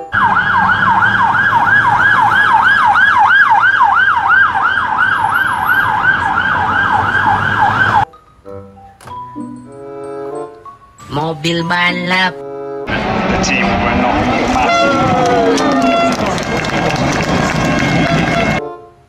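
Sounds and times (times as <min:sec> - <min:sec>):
police siren yelping: 0:00.0 - 0:08.1, 0:12.9 - 0:18.6.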